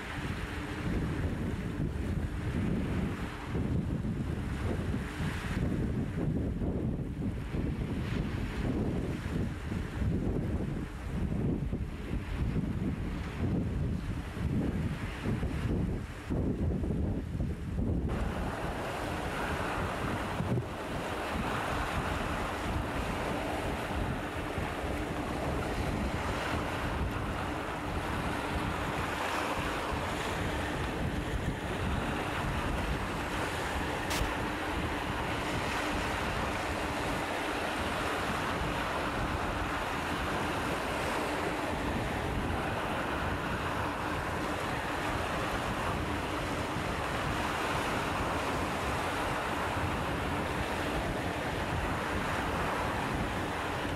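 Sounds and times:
wind buffeting microphone: 0.0 - 53.9
waves lapping over rocks: 18.1 - 53.9.

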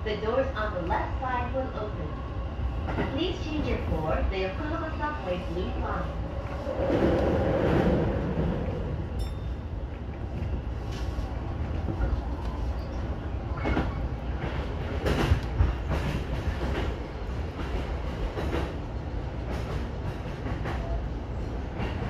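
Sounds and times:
electric train low rumble: 0.0 - 22.0
track clacks: 13.6 - 18.8.

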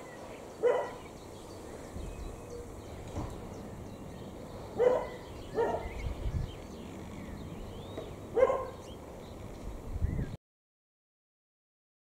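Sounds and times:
dog barking: 0.6 - 1.0, 4.8 - 5.9, 8.4 - 8.8.

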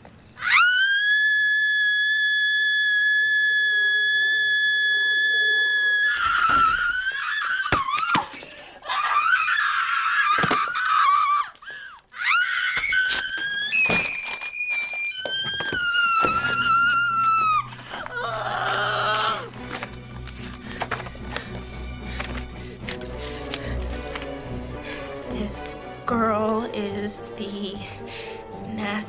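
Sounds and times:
woman screaming: 0.4 - 8.2, 12.2 - 13.8, 14.8 - 19.5.

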